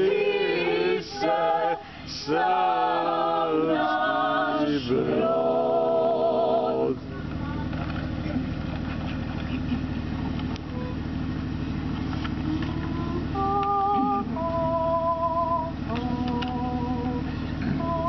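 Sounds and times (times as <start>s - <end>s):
choir singing in harmony: 0.0s - 7.1s, 12.7s - 18.0s
low mechanical hum: 0.0s - 18.0s.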